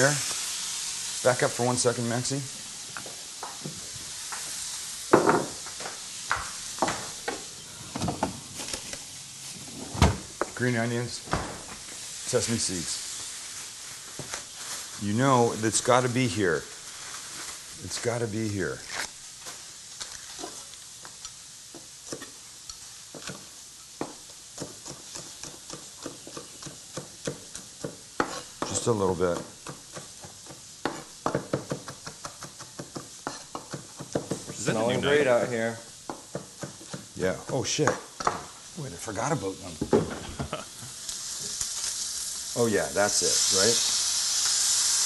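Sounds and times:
fish sizzling in a hot pan: 0:00.0 - 0:07.6, 0:11.8 - 0:45.0
knife chopping on wooden board: 0:24.0 - 0:34.6, 0:36.1 - 0:38.5.

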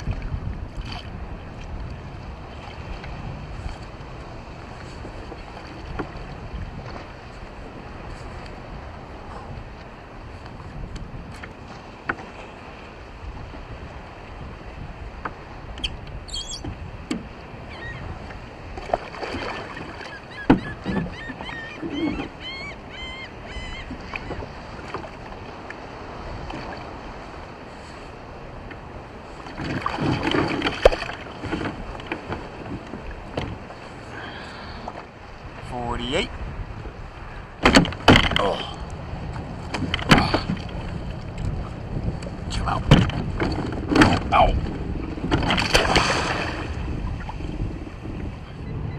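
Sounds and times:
wind: 0:00.0 - 0:48.9
water splashing: 0:18.8 - 0:22.2, 0:29.4 - 0:32.3, 0:37.6 - 0:47.4
knocks against kayak hull: 0:37.6 - 0:38.5, 0:39.6 - 0:40.9, 0:42.8 - 0:44.4.

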